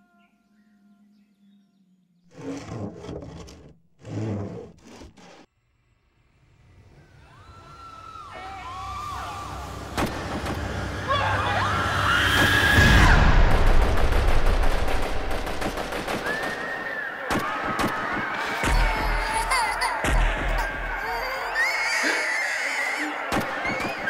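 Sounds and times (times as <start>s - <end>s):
long rising and falling cries: 6.9s - 9.9s, 10.6s - 13.3s, 18.4s - 24.0s
rapid gunfire: 13.4s - 18.8s.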